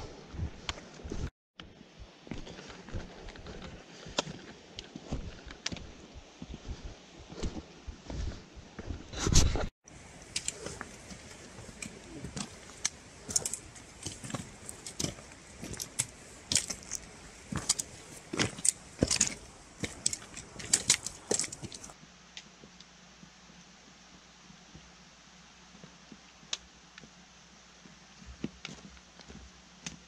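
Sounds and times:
footsteps on gravelly trail: 0:02.0 - 0:09.2, 0:09.9 - 0:22.0.

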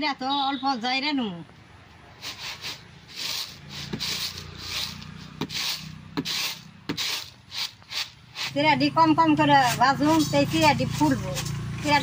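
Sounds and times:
rice rasping in winnowing tray: 0:02.2 - 0:08.6.

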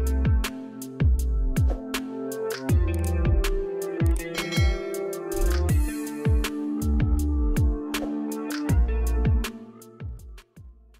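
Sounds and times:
sharp percussion strikes: 0:04.0 - 0:08.8
held synth notes: 0:04.1 - 0:06.8.

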